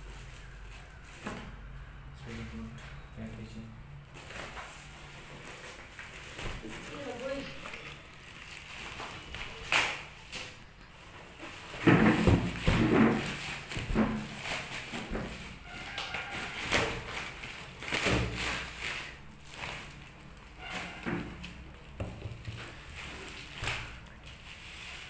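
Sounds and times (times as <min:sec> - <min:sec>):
plastic bag rustling: 0:04.1 - 0:25.0.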